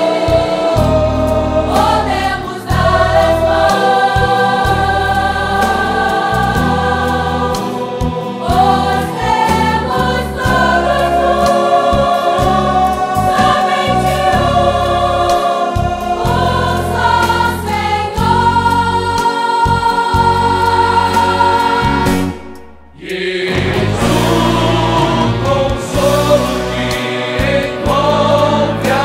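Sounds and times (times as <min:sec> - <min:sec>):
women singing in harmony: 0:00.0 - 0:22.3, 0:23.0 - 0:29.0
electric bass guitar: 0:23.5 - 0:27.6.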